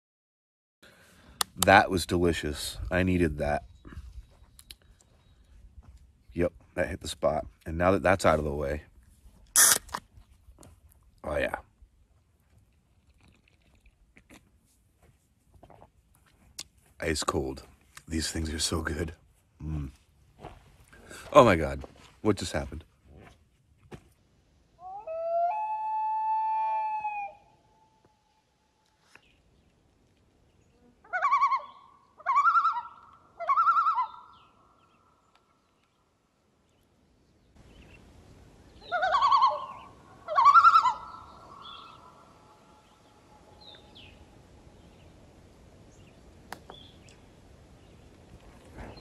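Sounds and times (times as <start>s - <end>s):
loons calling: 24.8s - 28.4s, 31.0s - 35.3s, 37.6s - 45.0s
faint background hiss: 34.8s - 49.0s.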